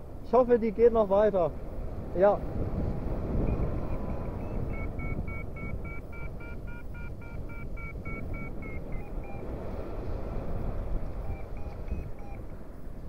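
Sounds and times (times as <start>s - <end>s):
wind rumbling on microphone: 0.0s - 13.0s
variometer beeping: 3.4s - 9.6s, 11.0s - 12.5s.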